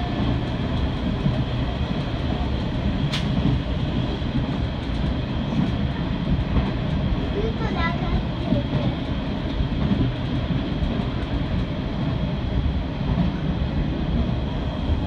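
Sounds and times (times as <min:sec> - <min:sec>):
train wheels rumbling on rails: 0:00.0 - 0:15.0
sharp click: 0:03.1 - 0:03.4.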